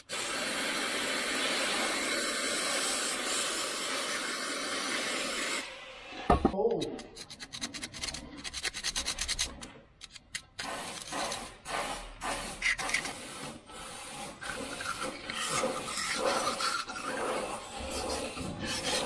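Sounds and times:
hand tool scraping metal: 6.9 - 13.2, 14.3 - 19.0.

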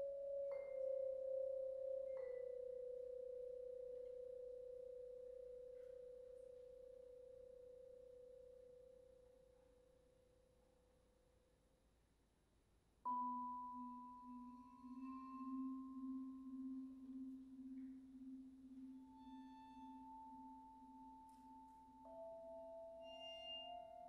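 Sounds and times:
mallet percussion: 0.0 - 7.0, 13.1 - 24.0
cello: 14.1 - 24.0.

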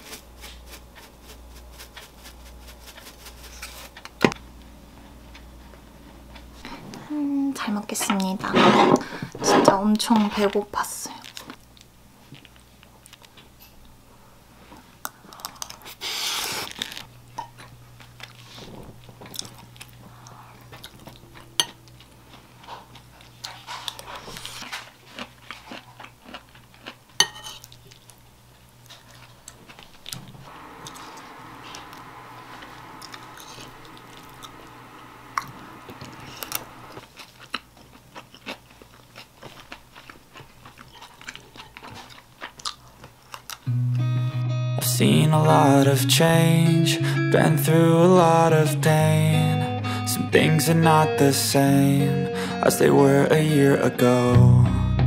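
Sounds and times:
soft chewing: 5.0 - 7.1, 11.1 - 13.9, 14.6 - 43.7
low steady hum: 17.0 - 24.6, 26.5 - 38.2
spoon clinking on a plate: 27.2 - 27.6.

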